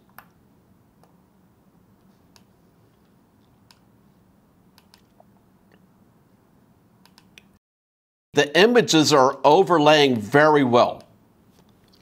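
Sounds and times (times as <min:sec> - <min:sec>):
faint computer mouse clicks: 0:02.3 - 0:02.5, 0:04.8 - 0:05.8, 0:07.0 - 0:07.5.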